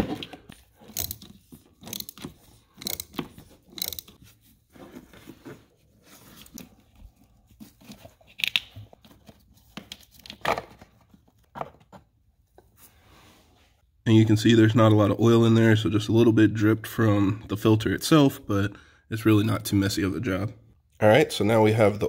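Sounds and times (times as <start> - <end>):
socket wrench clicking on plastic: 0.9 - 4.2.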